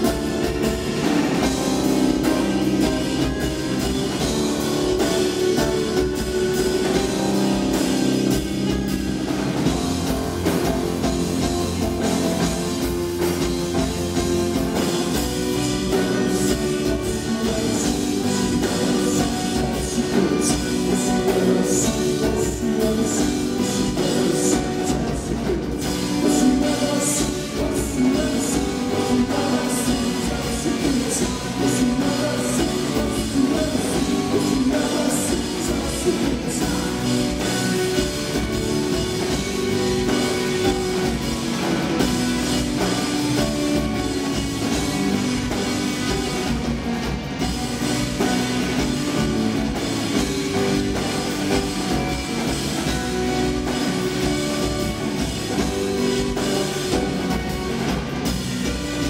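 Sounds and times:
live rock band playing: 0:00.0 - 0:59.0
man singing: 0:13.7 - 0:39.1.

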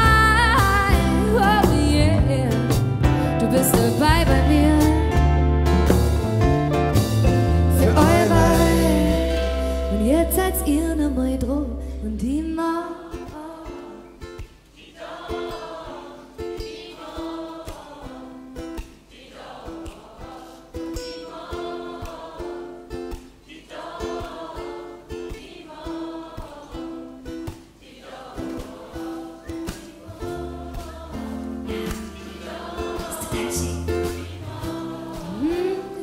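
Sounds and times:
live pop song: 0:00.0 - 0:14.0, 0:28.4 - 0:36.0
plucked ukulele: 0:00.0 - 0:36.0
crowd singing: 0:07.4 - 0:11.1, 0:14.8 - 0:36.0.

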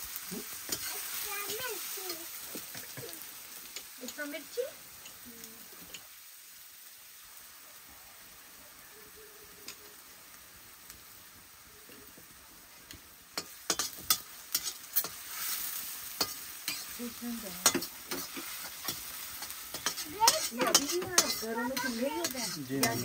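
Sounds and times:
potatoes sizzling in a pan: 0:00.0 - 0:23.0
metal spoon scraping a pan: 0:00.6 - 0:02.9, 0:13.3 - 0:23.0
person talking: 0:20.1 - 0:23.0.

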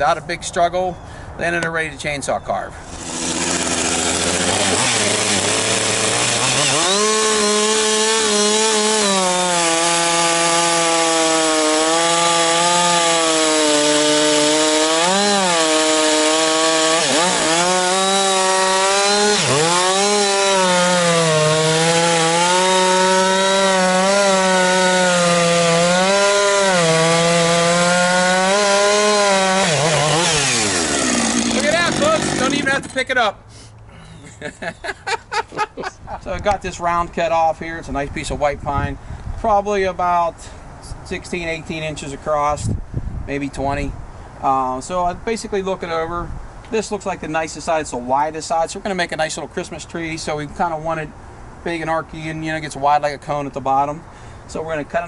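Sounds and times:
chainsaw revving and cutting log: 0:02.8 - 0:33.0.

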